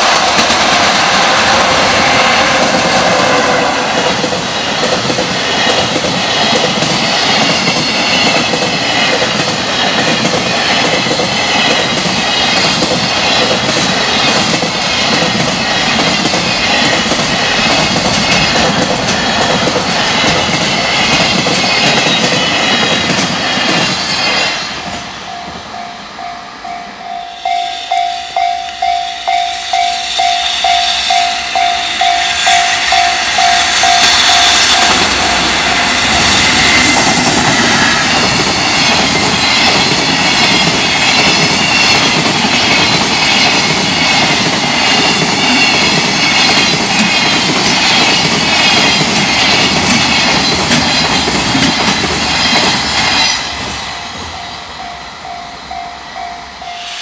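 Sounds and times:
train wheels clattering over rail joints: 2.6s - 24.6s, 33.8s - 53.8s
level crossing warning bell: 25.1s - 36.0s, 53.8s - 57.0s.

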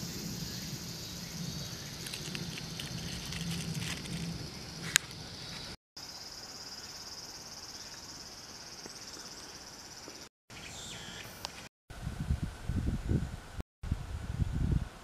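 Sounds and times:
insect chorus shrill trill: 0.0s - 10.0s.

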